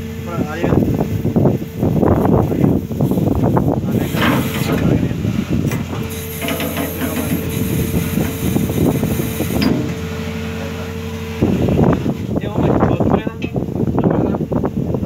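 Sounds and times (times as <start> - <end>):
windlass drive humming: 0.0 - 15.0
mechanical clatter: 3.1 - 10.0.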